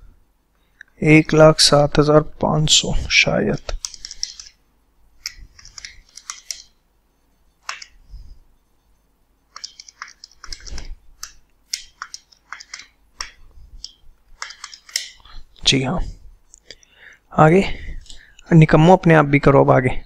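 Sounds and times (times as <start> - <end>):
irregular clicks and taps: 3.6 - 4.6, 7.6 - 8.0, 9.5 - 15.4.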